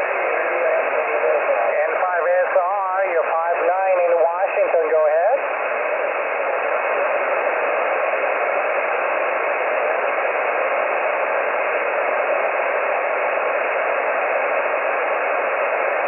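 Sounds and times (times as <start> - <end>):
radio band noise hiss: 0.0 - 16.0.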